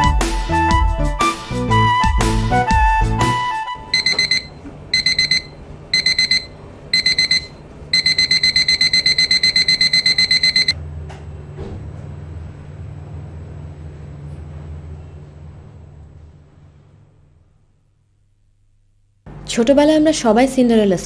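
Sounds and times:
music: 0.0 - 4.0
alarm clock beeping: 3.9 - 10.8.

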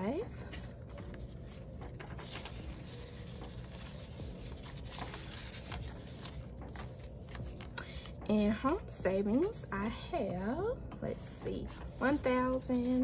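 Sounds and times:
paper rustling: 0.0 - 9.5, 11.1 - 13.0
steady low hum: 0.0 - 13.0.

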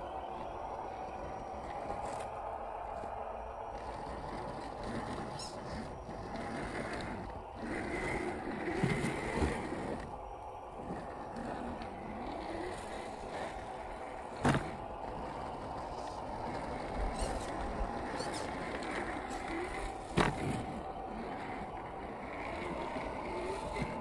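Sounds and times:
toy car motor and gears whining: 0.0 - 24.0.

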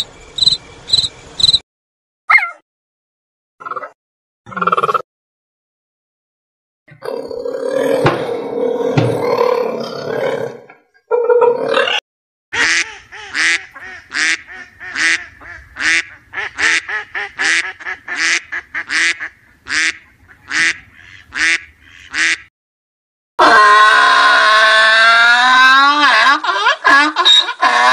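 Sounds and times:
duck quacking: 12.6 - 22.5.

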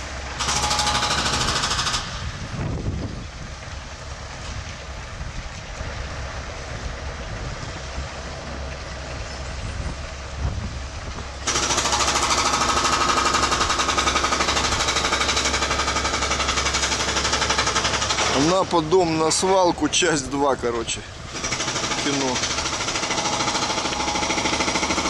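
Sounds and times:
demolition hammer pounding concrete: 0.0 - 2.3, 11.4 - 19.8, 21.3 - 25.0
outdoor rumble: 0.0 - 25.0.

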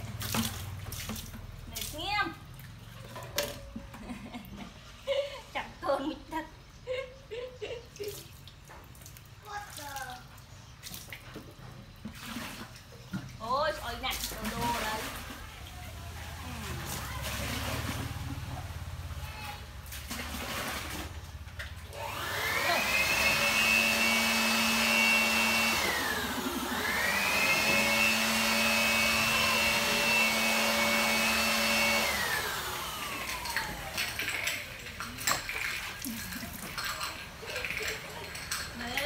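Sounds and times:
electric motor whine: 22.0 - 34.3.

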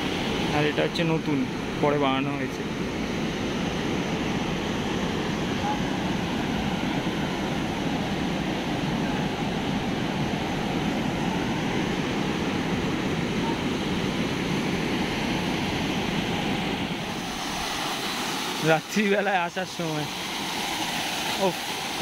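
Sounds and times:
river water rushing over rocks: 5.1 - 22.0.

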